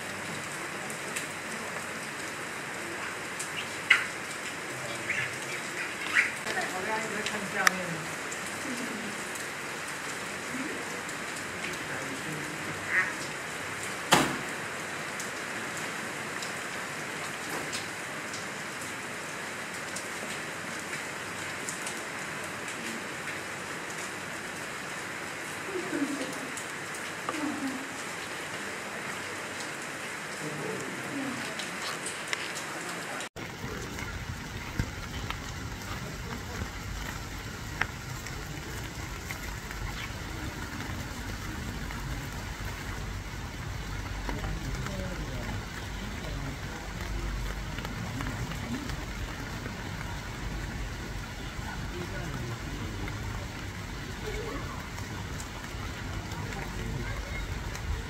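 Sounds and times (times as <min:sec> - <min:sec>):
steady rain falling: 0:00.0 - 0:58.0
sharp knock: 0:14.1 - 0:14.5.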